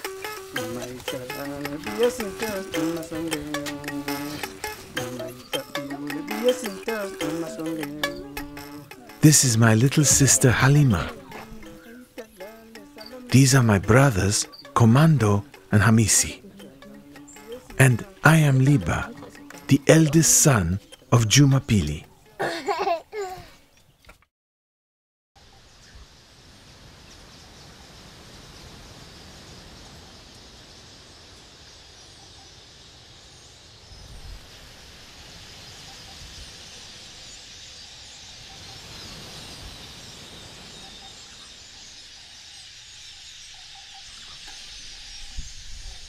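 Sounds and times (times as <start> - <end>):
steady high-pitched hiss: 0.0 - 23.3, 25.4 - 46.0
small bird chirps: 0.2 - 9.2, 10.0 - 18.2, 35.3 - 46.0.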